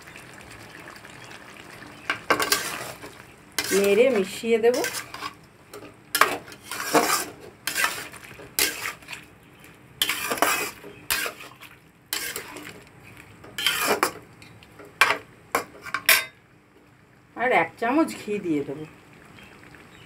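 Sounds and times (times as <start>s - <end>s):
metal spatula scraping a pan: 2.2s - 9.3s, 10.0s - 12.8s, 13.5s - 14.2s, 15.0s - 16.4s.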